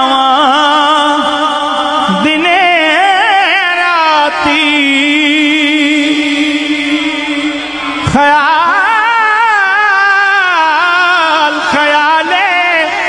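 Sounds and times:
person singing wordless ornamented notes: 0:00.0 - 0:13.0.

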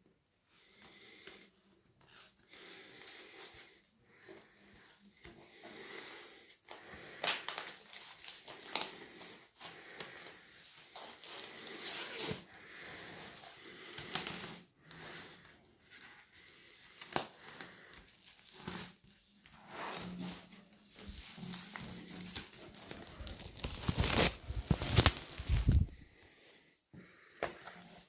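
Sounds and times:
plastic wrapping crinkling: 0:20.9 - 0:26.0.

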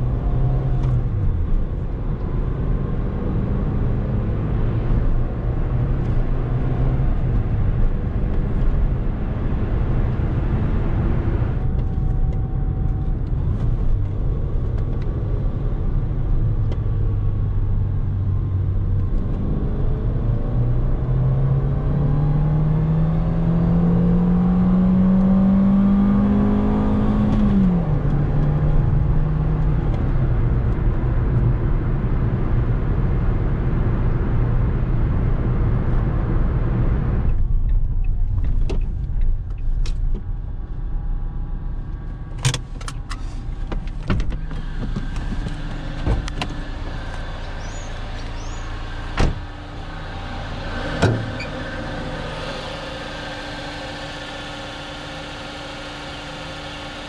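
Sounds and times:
car engine accelerating: 0:00.0 - 0:57.0
road noise: 0:00.0 - 0:57.0.

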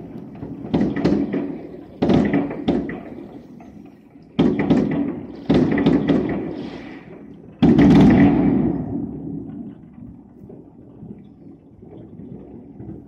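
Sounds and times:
firework booms echoing: 0:00.0 - 0:03.8, 0:04.4 - 0:09.7
faint firework crackling: 0:00.0 - 0:13.0.

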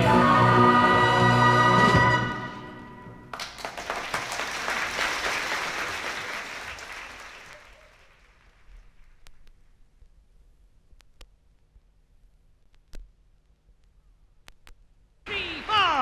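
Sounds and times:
audience applauding: 0:03.3 - 0:08.6.

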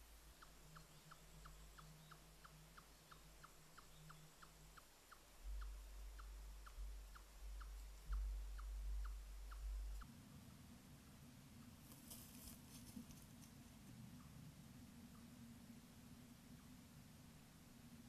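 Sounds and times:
small animal chirping: 0:00.3 - 0:10.1
low rumble: 0:05.4 - 0:11.6.

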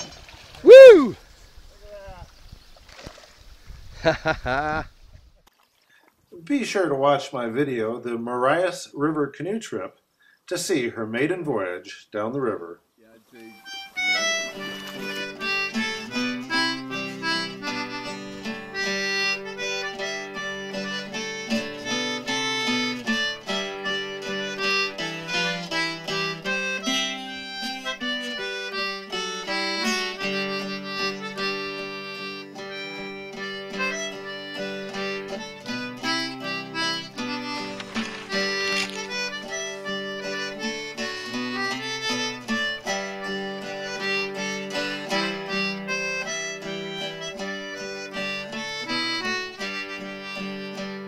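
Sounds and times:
harmonica melody: 0:13.4 - 0:51.0
plucked acoustic guitar: 0:13.6 - 0:51.0.

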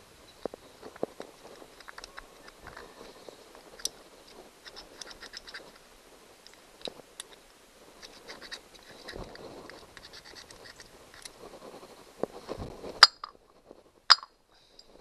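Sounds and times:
screwdriver scraping metal: 0:04.6 - 0:05.7, 0:08.0 - 0:11.4.

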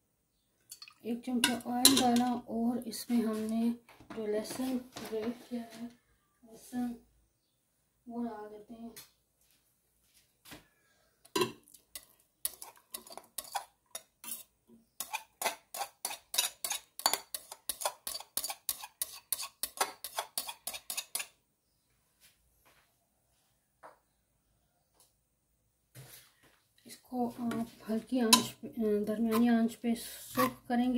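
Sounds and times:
spoon clinking on metal pot: 0:00.7 - 0:02.3, 0:11.3 - 0:14.1, 0:15.0 - 0:21.3, 0:28.3 - 0:28.6.

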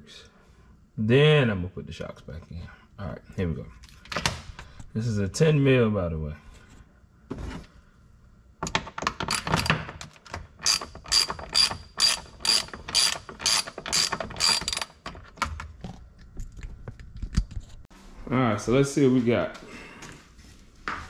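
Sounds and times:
socket ratchet clicking: 0:09.2 - 0:15.2.

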